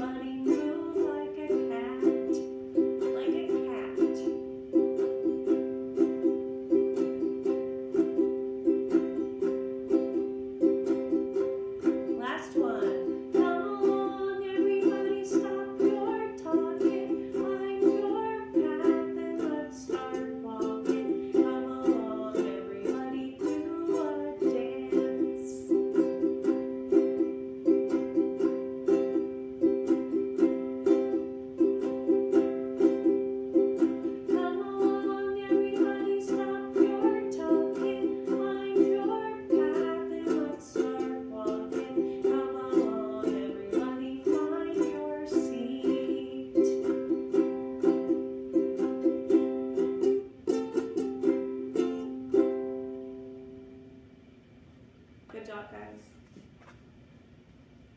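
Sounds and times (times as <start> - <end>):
woman singing: 0.0 - 4.5, 12.1 - 26.2, 33.8 - 47.7
ukulele strumming: 0.0 - 54.4.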